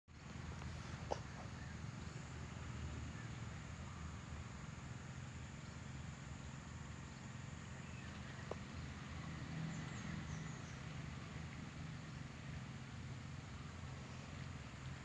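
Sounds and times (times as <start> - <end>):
faint high bird chirps: 1.0 - 1.8.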